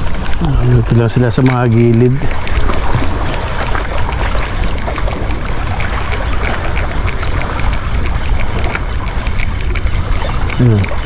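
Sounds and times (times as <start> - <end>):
sea waves: 0.0 - 11.0
wind rumbling on microphone: 0.0 - 11.0
small crackles: 1.3 - 11.0.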